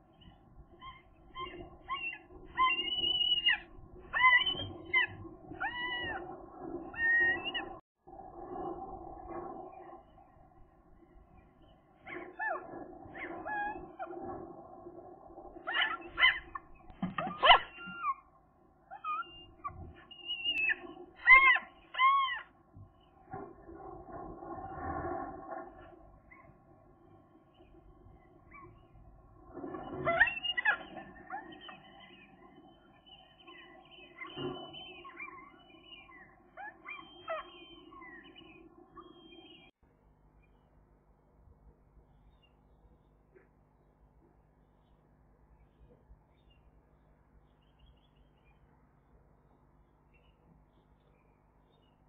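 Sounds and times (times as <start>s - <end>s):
gull calling: 0.8s - 7.8s, 15.6s - 18.3s, 18.9s - 22.6s, 29.8s - 32.5s, 33.5s - 39.6s.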